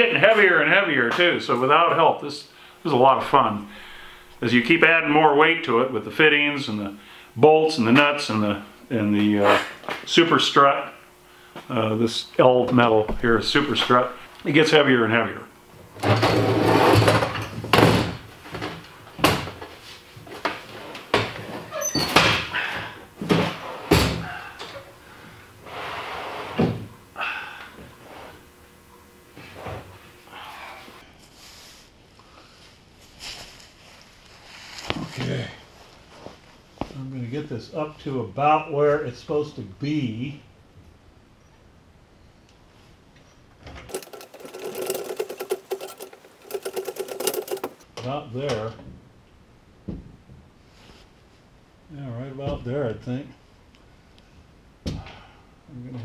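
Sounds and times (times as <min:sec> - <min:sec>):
hydraulic jack chattering clicks: 0:43.9 - 0:47.8.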